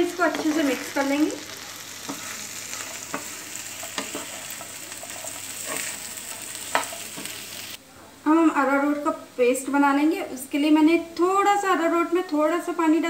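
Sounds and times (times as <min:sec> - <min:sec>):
potatoes sizzling in a pan: 0:00.0 - 0:07.8
spatula scraping and knocking pan: 0:02.0 - 0:07.8.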